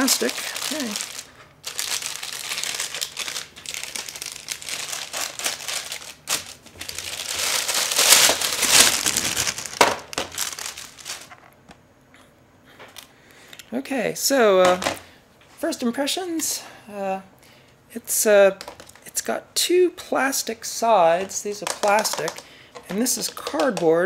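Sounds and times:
plastic shrink wrap tearing: 0.0s - 11.4s.

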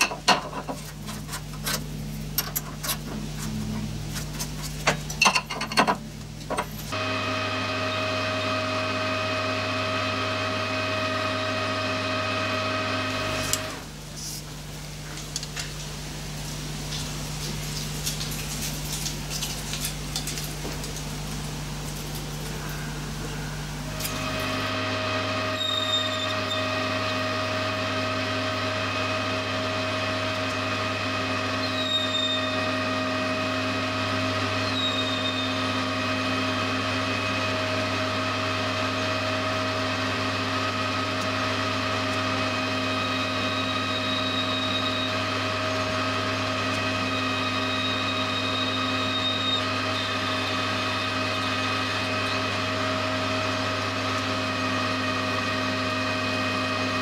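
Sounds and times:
metal lathe humming: 6.5s - 13.9s, 22.5s - 57.0s.

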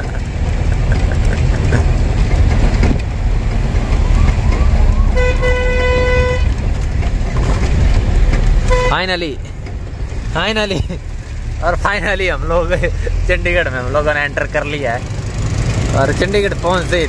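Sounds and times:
truck engine and road rumble: 0.0s - 17.0s
vehicle horn blast: 5.1s - 6.6s, 8.6s - 9.0s.

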